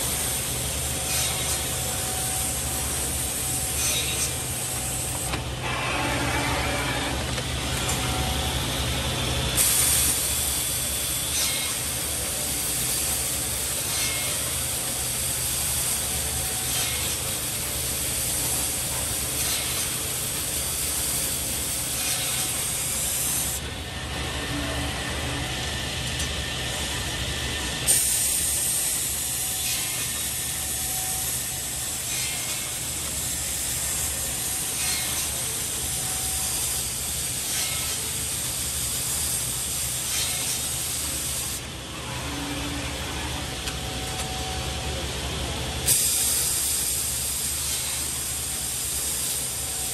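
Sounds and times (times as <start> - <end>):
machine motor hum: 0.0 - 27.8.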